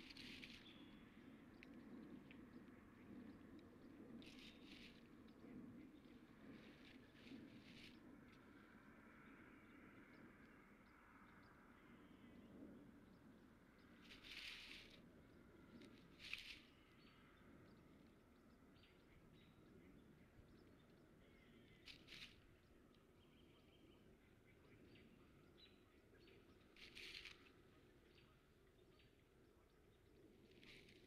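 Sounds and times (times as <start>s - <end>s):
soft rustles in nest grass: 0.0s - 8.7s, 13.8s - 18.1s, 21.7s - 23.1s, 26.4s - 31.0s
faint steady hum: 0.0s - 31.0s.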